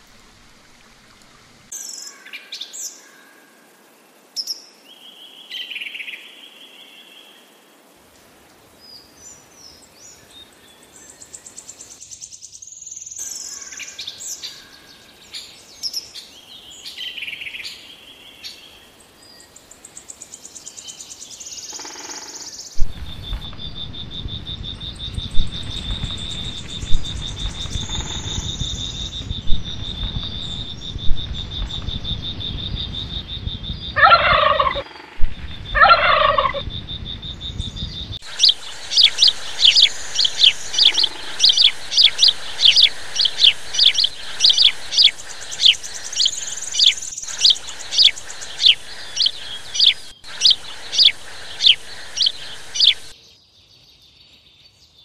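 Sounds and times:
steady hiss: 0:00.0 - 0:53.2
bird chirping: 0:09.7 - 0:55.0
loud falling bird calls: 0:21.7 - 0:53.2
low rumble: 0:22.8 - 0:53.1
steady high whine: 0:22.8 - 0:53.1.

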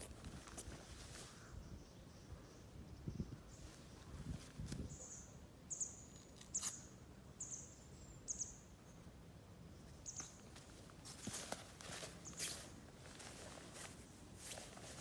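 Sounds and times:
bird chirping: 0:04.8 - 0:09.1, 0:09.8 - 0:10.5.

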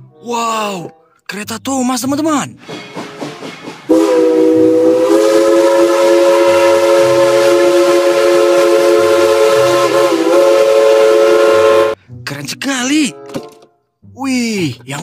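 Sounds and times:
steam locomotive whistle: 0:03.9 - 0:12.0.

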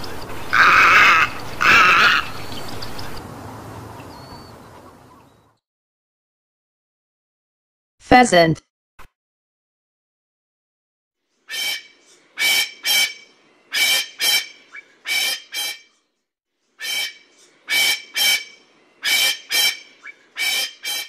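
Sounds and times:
pheasant calling: 0:00.0 - 0:05.6, 0:11.5 - 0:15.9, 0:16.8 - 0:21.0.

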